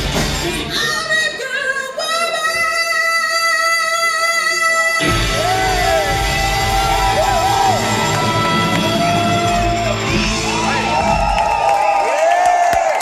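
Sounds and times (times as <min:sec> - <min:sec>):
soul band playing: 0:00.0 - 0:01.2, 0:05.0 - 0:11.3
crowd whoops and yells: 0:05.0 - 0:13.0.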